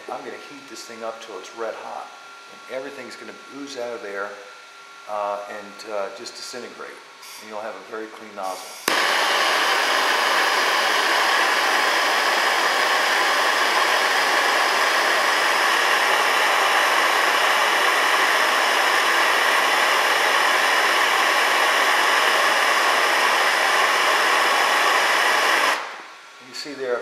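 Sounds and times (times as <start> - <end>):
gas torch hissing: 7.2 - 7.8, 8.4 - 26.8.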